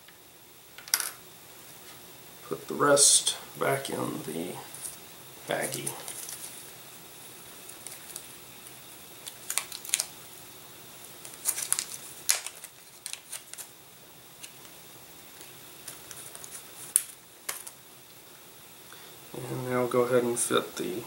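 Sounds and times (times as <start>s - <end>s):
plastic bag crinkling: 4.7s - 6.6s, 7.6s - 8.4s, 9.2s - 10.2s, 11.2s - 13.8s.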